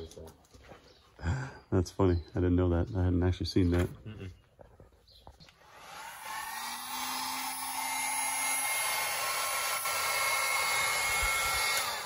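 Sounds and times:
heat gun blowing air: 5.6 - 12.0.

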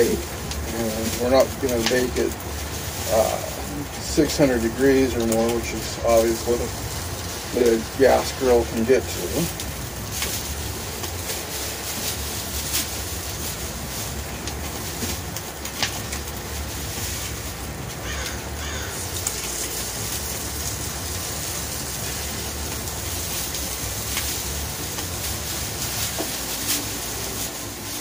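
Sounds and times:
steady rushing background noise: 0.0 - 28.0
crows cawing: 18.0 - 19.2.

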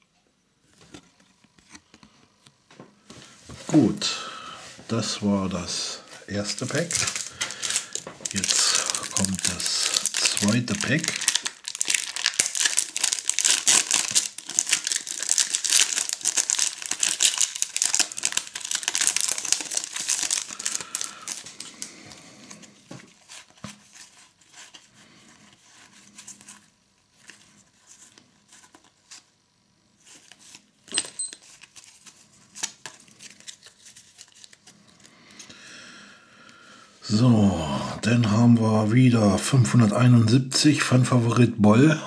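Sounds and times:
cards rustling: 4.9 - 29.2, 30.0 - 35.5
foil pack tearing and crinkling: 6.3 - 24.8, 30.2 - 35.1.

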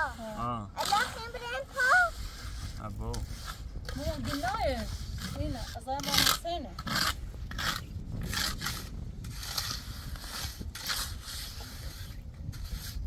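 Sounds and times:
rough scraping strokes: 0.0 - 13.0.

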